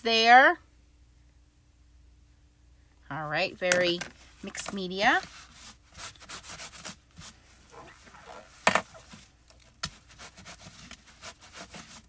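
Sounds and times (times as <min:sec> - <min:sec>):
paper towel rubbing plastic stencil: 0:05.1 - 0:12.0.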